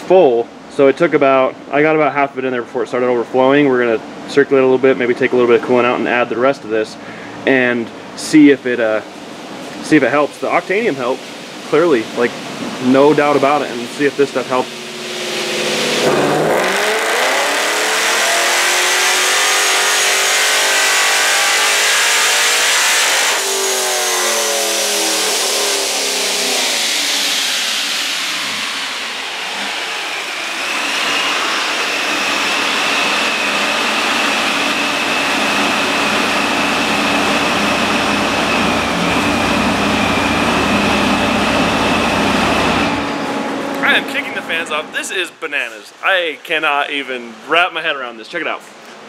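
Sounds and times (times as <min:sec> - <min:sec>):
steady hum: 0:00.0 - 0:47.4
supercharger whine: 0:10.8 - 0:45.3
engine revving at full throttle: 0:13.3 - 0:45.0.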